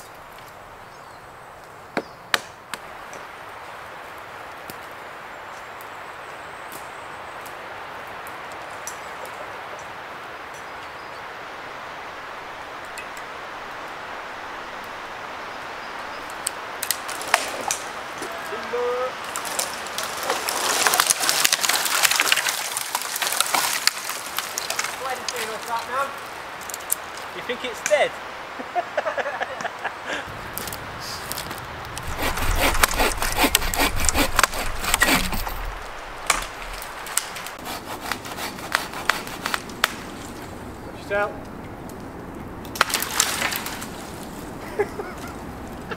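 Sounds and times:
woodland hiss: 0.0s - 20.4s, 21.7s - 41.3s
dead wood cracking and snapping: 16.2s - 18.3s, 19.2s - 28.0s, 30.4s - 40.6s, 41.4s - 44.6s
bow saw rasping through log: 32.0s - 40.0s
wood knocking: 32.0s - 40.0s.

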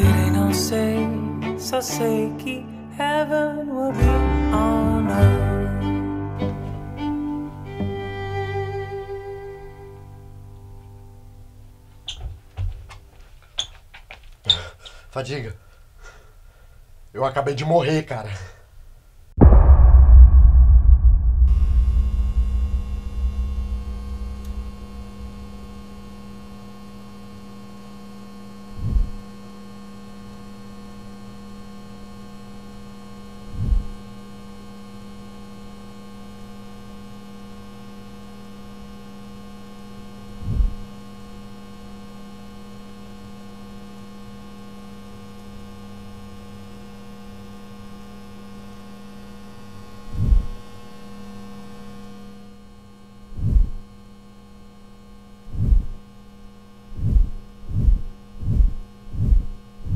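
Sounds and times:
short deep thumps: 19.4s - 26.5s, 28.8s - 29.2s, 33.6s - 34.0s, 40.4s - 40.8s, 50.2s - 50.6s, 53.4s - 53.8s, 55.5s - 56.0s, 57.0s - 59.9s
low rumble: 19.4s - 27.0s, 53.4s - 53.8s, 55.6s - 56.0s, 57.0s - 59.9s
steady electrical hum: 21.5s - 59.9s.

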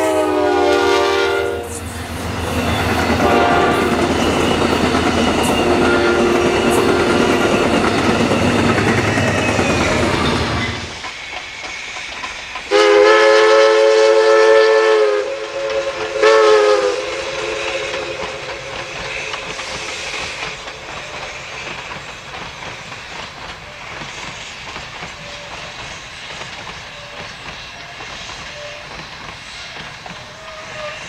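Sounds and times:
steam locomotive whistle: 0.0s - 11.0s, 12.7s - 21.5s, 26.8s - 31.0s
train cars rumbling on rails: 0.0s - 31.0s.

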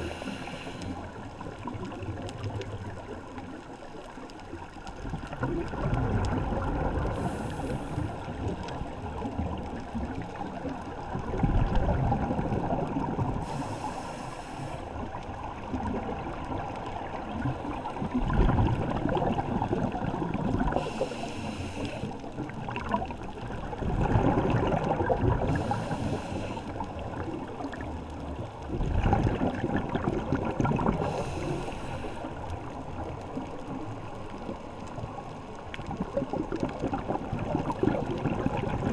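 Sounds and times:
regulator inhale hiss: 0.0s - 1.2s, 7.1s - 8.5s, 13.4s - 15.1s, 20.7s - 22.3s, 25.4s - 26.9s, 31.0s - 32.5s
gurgle of exhaled bubbles: 1.1s - 13.8s, 15.0s - 21.2s, 22.3s - 31.5s, 32.6s - 38.9s.

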